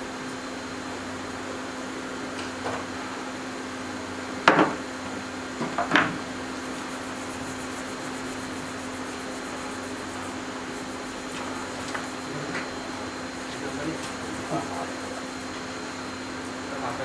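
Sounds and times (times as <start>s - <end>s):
steady low hum: 0.0s - 17.0s
tools knocking on a bench: 4.5s - 4.8s.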